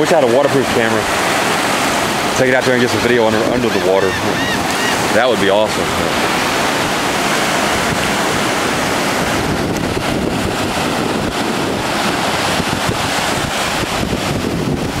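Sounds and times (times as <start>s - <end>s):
surf washing up a beach: 0.0s - 15.0s
wind buffeting microphone: 0.0s - 15.0s.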